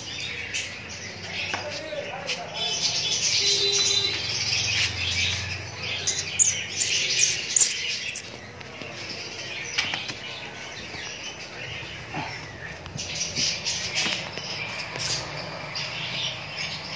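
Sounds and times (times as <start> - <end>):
small birds chirping: 0.0 - 16.9.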